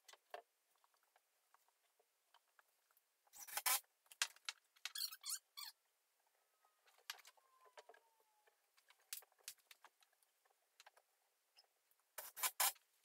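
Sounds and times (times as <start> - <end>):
wooden shims clicking and tapping: 3.7 - 5.1
faint squeak sliding down: 4.9 - 5.8.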